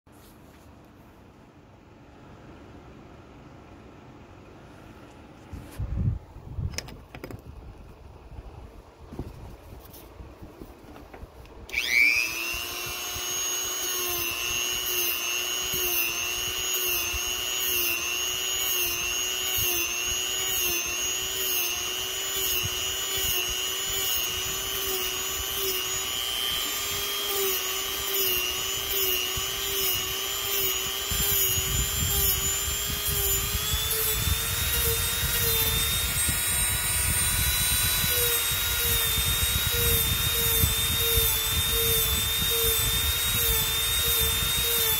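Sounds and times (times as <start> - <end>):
rotary tool whining: 9.2 - 44.9.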